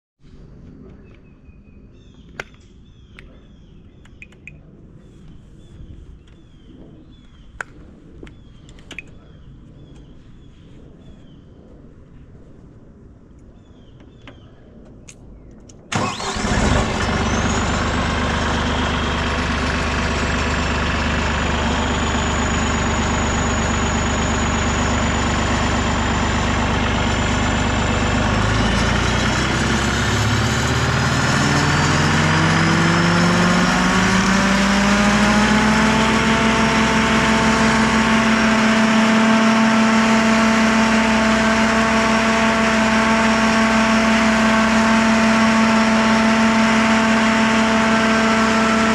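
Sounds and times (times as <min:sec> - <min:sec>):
stump grinder engine revving: 0:15.9 - 0:48.9.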